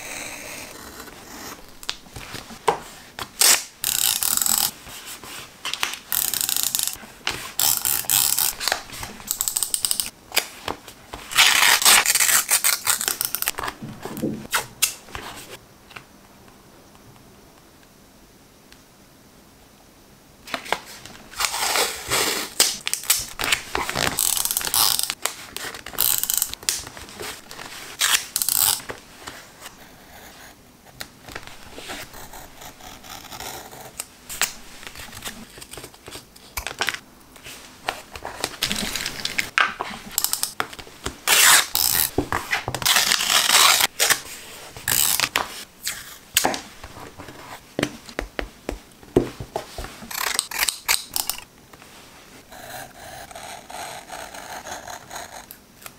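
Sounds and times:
paper tearing and handling: 11.3s - 13.6s, 41.3s - 44.2s.

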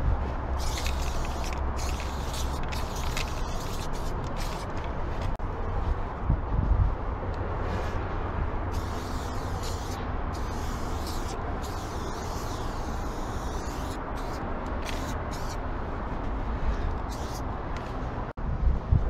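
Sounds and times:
spray paint can hissing: 0.6s - 4.8s, 8.7s - 15.6s, 17.1s - 17.4s.

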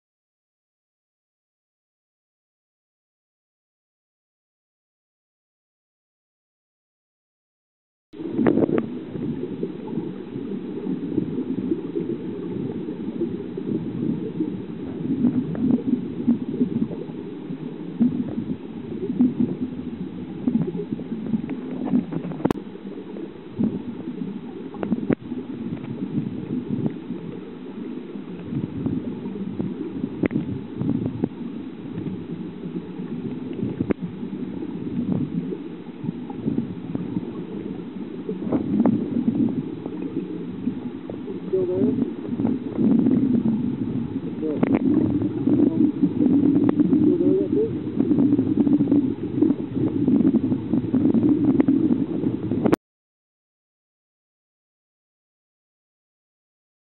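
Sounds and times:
underwater river gurgling rush: 8.2s - 52.8s
faint clicks: 30.2s - 30.5s.

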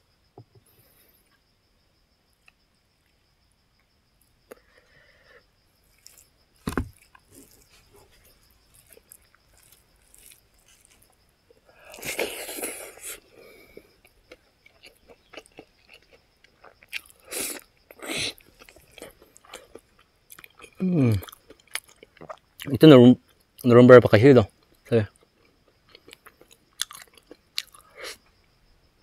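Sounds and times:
person chewing and biting: 5.9s - 11.2s, 11.8s - 13.2s, 14.0s - 22.7s, 25.9s - 27.9s
low thump: 6.6s - 7.0s.

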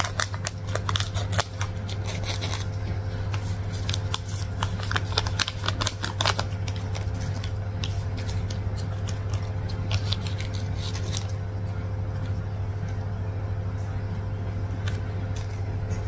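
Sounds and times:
scissors snipping plastic: 0.0s - 2.7s
plastic packets crinkling: 0.0s - 11.4s
low hum: 0.0s - 16.0s.

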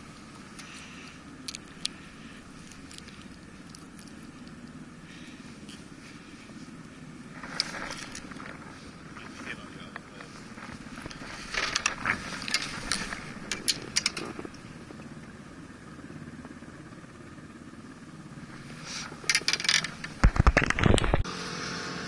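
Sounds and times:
low background rumble: 0.0s - 21.2s
fishing tackle clicks and knocks: 1.4s - 2.0s, 11.0s - 14.6s, 19.2s - 21.2s.

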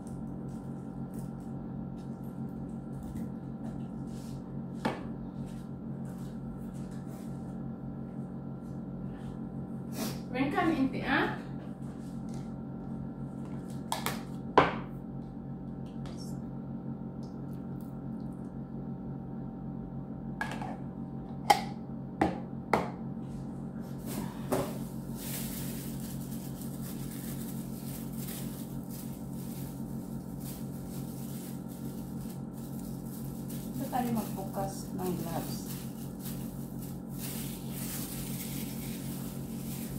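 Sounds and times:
steady hum: 0.0s - 39.9s
plastic gloves crinkling: 23.9s - 39.9s.

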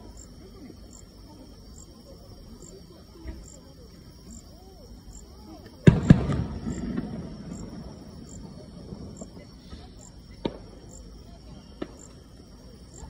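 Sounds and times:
fireworks shells bursting: 5.8s - 11.1s.

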